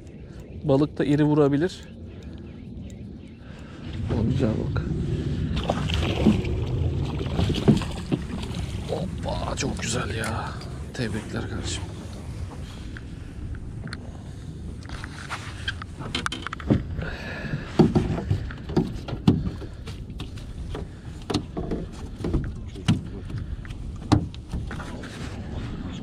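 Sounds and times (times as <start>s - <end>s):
low rumble of boat: 0.0s - 26.0s
wind: 0.0s - 26.0s
thumps and knocks on boat: 7.1s - 8.8s, 16.0s - 23.3s, 24.0s - 24.9s.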